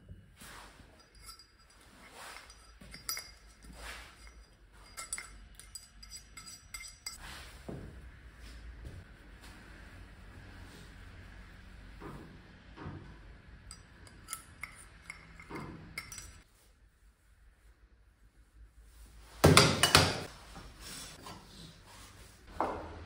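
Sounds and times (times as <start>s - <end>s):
metal tools clinking: 0.8s - 7.2s, 13.7s - 16.4s.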